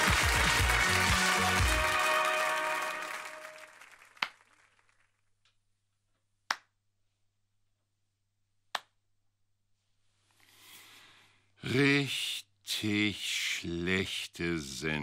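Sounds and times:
closing music: 0.0s - 4.0s
man clapping hands: 0.0s - 5.0s, 6.5s - 6.8s
applause: 0.0s - 5.3s.

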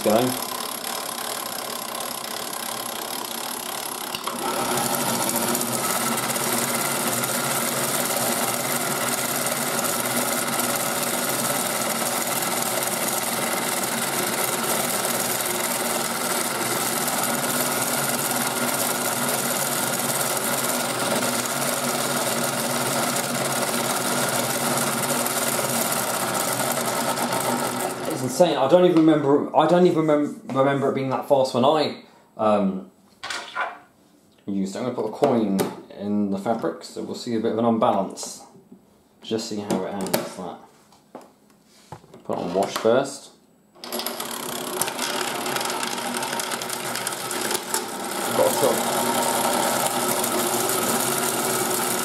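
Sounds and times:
toy washing machine motor whirring: 0.0s - 28.4s, 43.8s - 52.0s.

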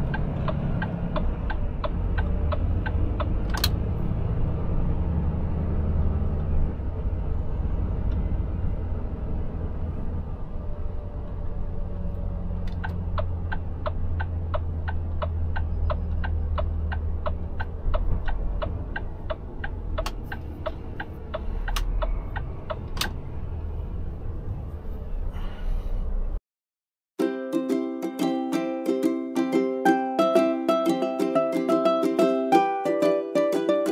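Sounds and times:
ukulele music: 0.0s - 3.7s, 27.2s - 33.9s
turn signal ticking: 0.0s - 4.0s, 12.2s - 23.2s
truck cab engine drone: 0.0s - 26.4s.

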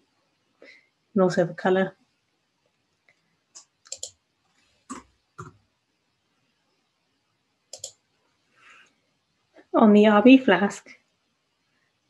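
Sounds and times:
mouse and keyboard clicks: 3.6s - 4.2s, 7.7s - 8.0s.

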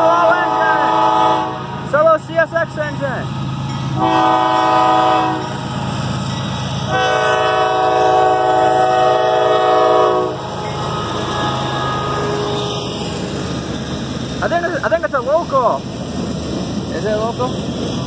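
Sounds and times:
train air horn blasts: 0.0s - 1.8s, 4.0s - 5.5s, 6.9s - 13.0s
diesel train rumbling: 0.0s - 18.0s.

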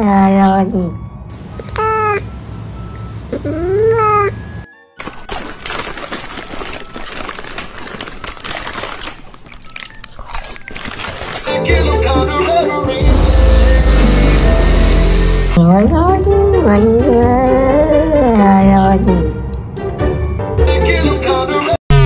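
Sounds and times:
cat munching food: 5.0s - 11.6s.

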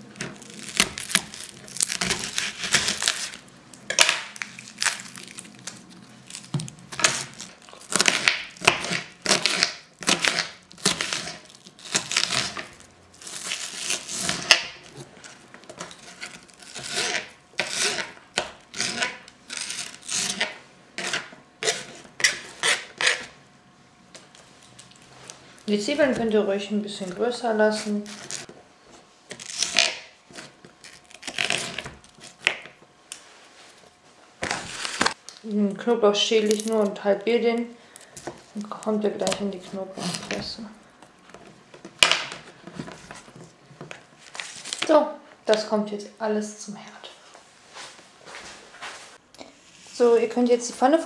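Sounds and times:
knife cutting onion on board: 7.9s - 11.4s.

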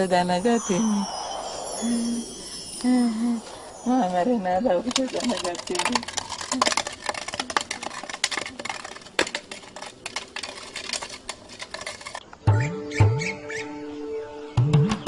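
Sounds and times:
dense crackling and clicking: 3.9s - 12.4s.

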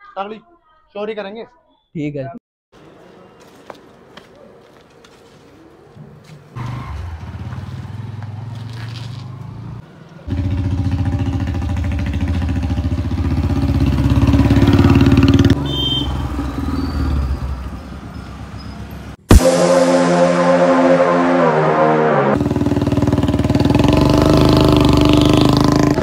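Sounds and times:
motorcycle engine running: 9.6s - 15.6s, 22.4s - 26.0s.

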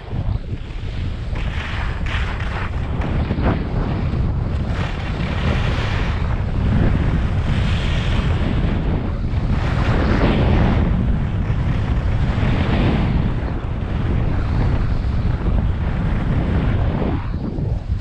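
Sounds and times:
skis scraping on hard snow: 0.0s - 8.6s, 9.3s - 13.5s
wind buffeting microphone: 0.0s - 18.0s.

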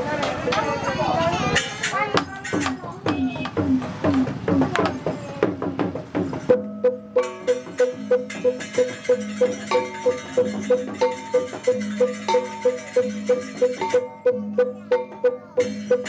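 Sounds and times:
ringing metallophone notes: 6.4s - 16.0s.

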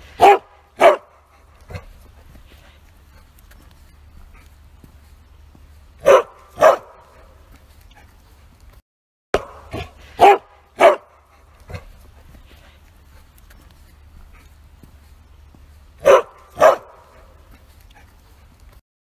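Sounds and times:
dog barking: 0.2s - 1.9s, 6.0s - 8.1s, 9.4s - 11.9s, 16.0s - 18.1s.

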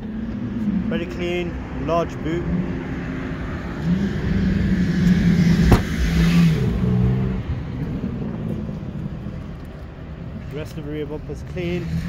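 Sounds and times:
car engine running: 3.8s - 6.2s
car boot lid slamming: 5.6s - 6.1s.

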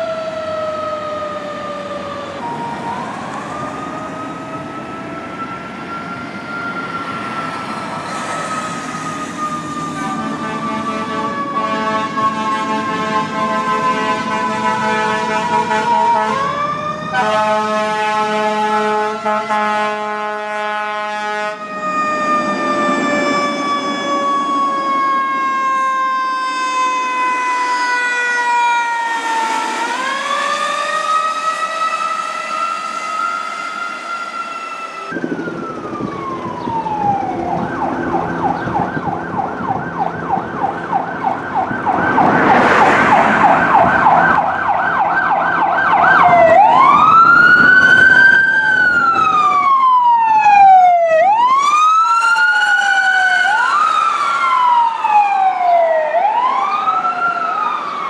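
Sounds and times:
fire truck siren: 0.0s - 58.0s.

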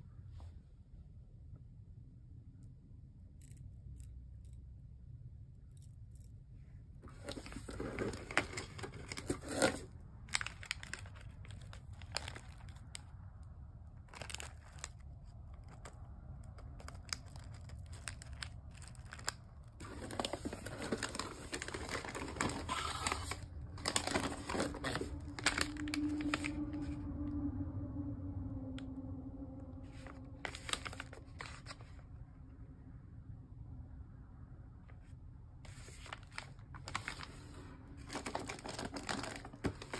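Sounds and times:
low steady hum: 0.0s - 39.9s
plastic wrappers crinkling: 7.1s - 13.1s, 14.0s - 27.0s, 29.9s - 32.0s, 35.7s - 39.9s.

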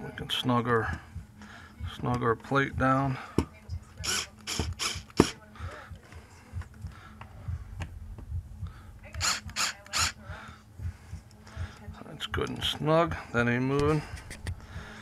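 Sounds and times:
cordless screwdriver driving screws: 4.0s - 5.4s, 9.2s - 10.2s.

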